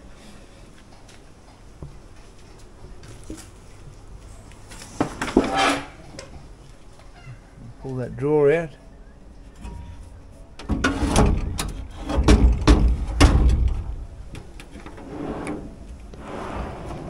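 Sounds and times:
drawer sliding on runners: 0:14.8 - 0:17.0.

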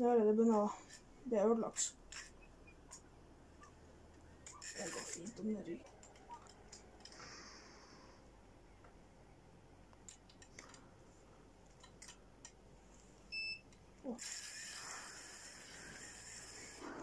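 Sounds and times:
faint clicks: 0:02.2 - 0:07.4
fishing reel drag hissing: 0:14.1 - 0:17.0.

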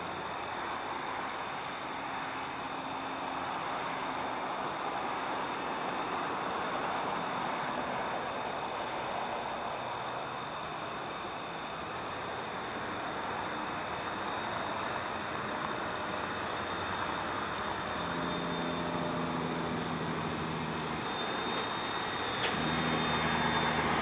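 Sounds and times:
highway traffic noise: 0:00.0 - 0:24.0
low engine hum: 0:00.0 - 0:24.0.

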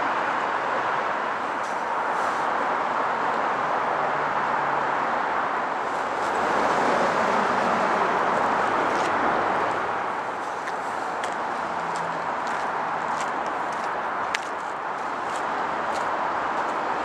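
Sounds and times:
traffic roar: 0:00.0 - 0:17.0
approaching commuter train: 0:05.6 - 0:14.4.

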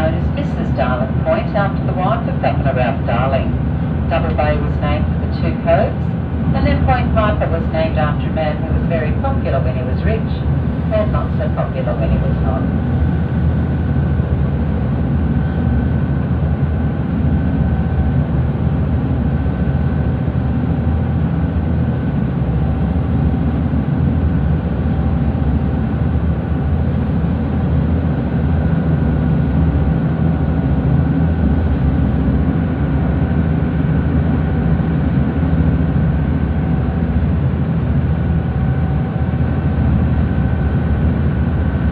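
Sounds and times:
diesel engines droning: 0:00.0 - 0:14.0.

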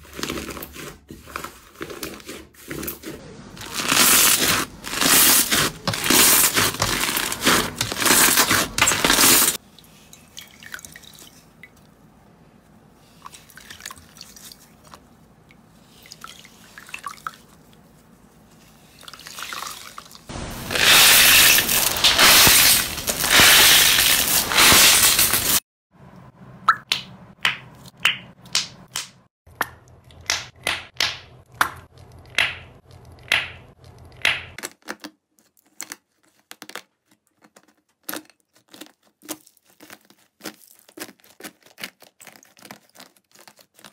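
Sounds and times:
crackly slime squishing: 0:31.5 - 0:43.9.

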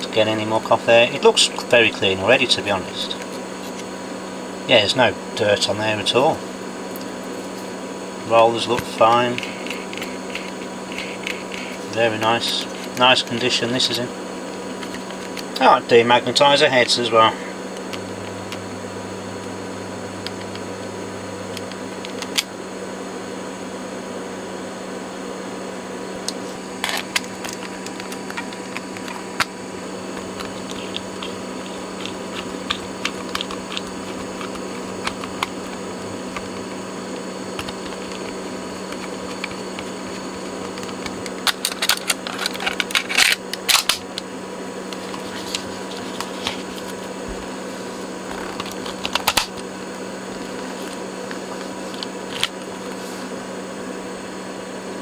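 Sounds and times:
demagnetizer humming: 0:00.0 - 0:55.0
low background hum: 0:00.0 - 0:55.0
clicks of small parts handled: 0:40.6 - 0:44.0.

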